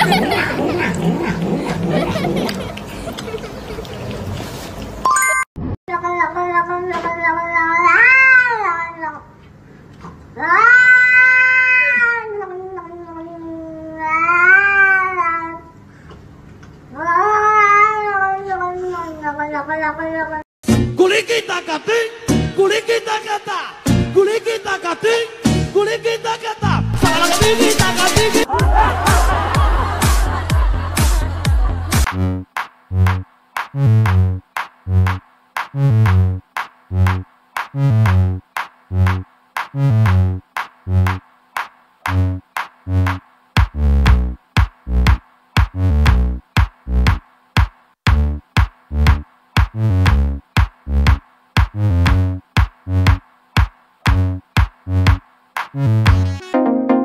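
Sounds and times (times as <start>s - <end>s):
cat yowling loudly: 6.1s - 9.2s, 10.4s - 15.7s, 17.0s - 20.4s
electronic dance music: 26.9s - 41.2s, 42.1s - 57.0s.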